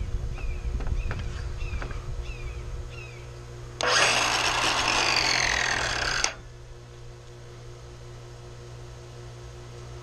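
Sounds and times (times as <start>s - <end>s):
circular saw whining: 3.8s - 6.5s.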